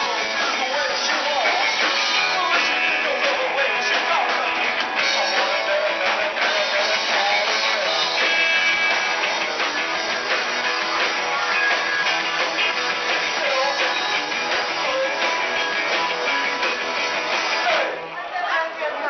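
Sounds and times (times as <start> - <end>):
person singing: 0.0 - 8.6, 13.2 - 15.6
drum kit: 0.0 - 18.0
electric guitars: 0.0 - 19.0.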